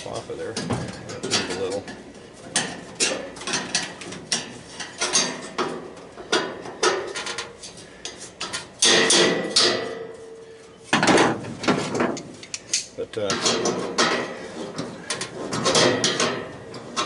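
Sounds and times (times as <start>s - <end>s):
scraping metal clanks: 0.0s - 17.0s
metal clicks and knocks: 11.0s - 17.0s.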